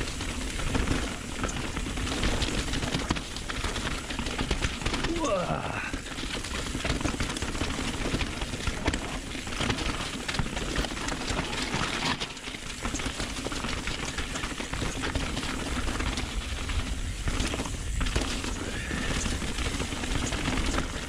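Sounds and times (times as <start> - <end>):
bike rattling and knocking: 0.0 - 21.0
tyres crunching over stones: 0.0 - 21.0
wind on microphone: 15.7 - 21.0.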